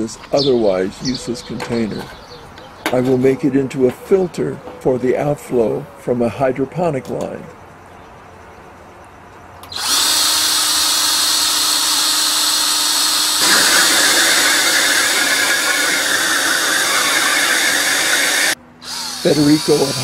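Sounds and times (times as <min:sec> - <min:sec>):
power drill cutting through metal: 0:09.6 - 0:20.0.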